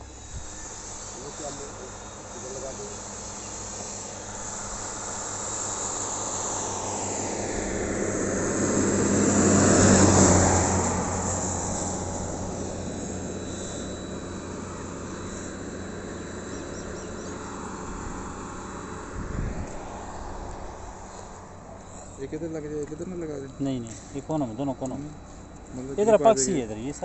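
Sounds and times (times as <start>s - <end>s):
vehicle driving past: 6.6s - 25.5s.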